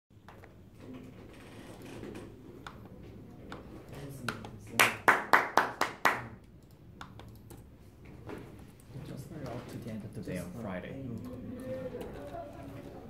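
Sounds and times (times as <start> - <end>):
person clapping hands: 4.8 - 6.3.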